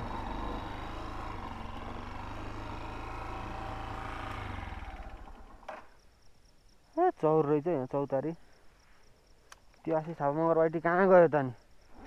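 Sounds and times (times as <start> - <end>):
motorcycle engine idling: 0.0 - 6.0
insects chirping: 0.0 - 12.0
sharp click: 9.5 - 9.8.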